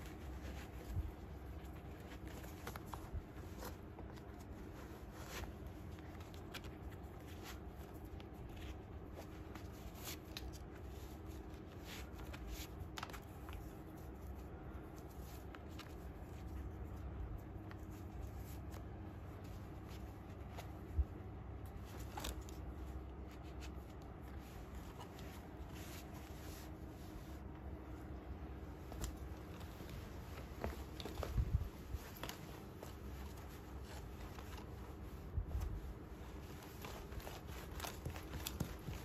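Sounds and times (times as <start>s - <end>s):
faint low hum: 0.0s - 39.0s
shoe laces rustling and ticking: 28.5s - 39.0s.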